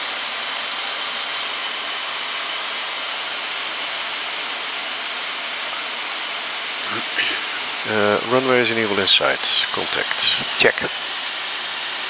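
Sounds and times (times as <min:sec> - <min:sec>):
air-conditioning and fans: 0:00.0 - 0:12.0
faint high whine: 0:06.8 - 0:12.0.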